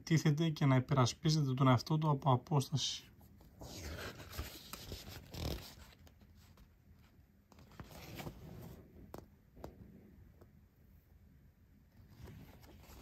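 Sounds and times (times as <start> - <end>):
magazine paper rustling: 3.5 - 6.7, 7.6 - 8.8.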